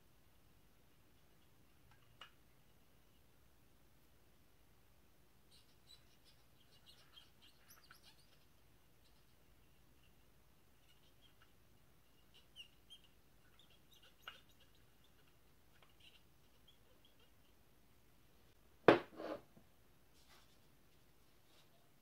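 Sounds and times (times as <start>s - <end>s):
faint high chirping: 5.4s - 17.8s
camera part knocking on wooden table: 18.9s - 19.2s.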